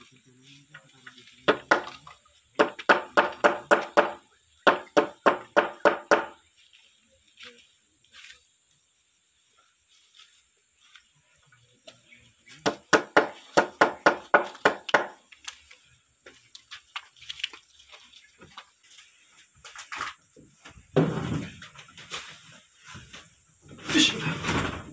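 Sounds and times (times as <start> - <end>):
hammer striking wooden planks: 1.4 - 2.0, 2.6 - 6.4, 12.6 - 15.2.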